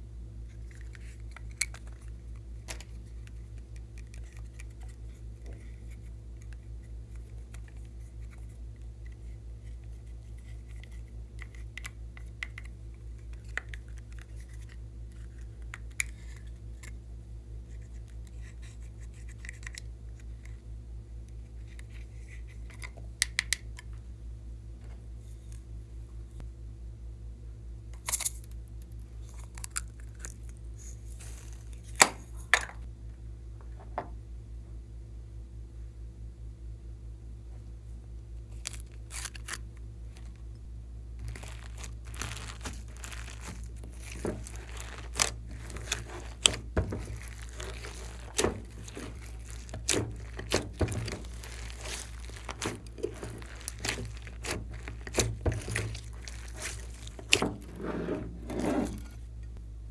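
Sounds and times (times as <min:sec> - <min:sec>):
low hum: 0:23.6 - 0:59.9
stick scraping powder: 0:42.4 - 0:59.3.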